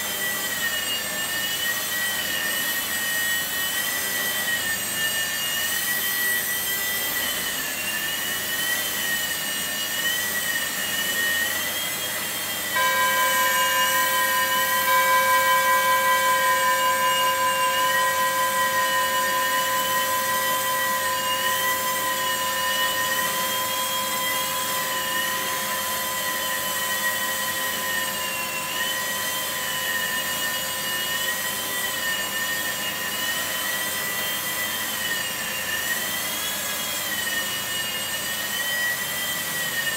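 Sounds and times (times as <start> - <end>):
rc helicopter motors whining: 0.0 - 39.9
steady multi-tone hum: 12.2 - 28.9.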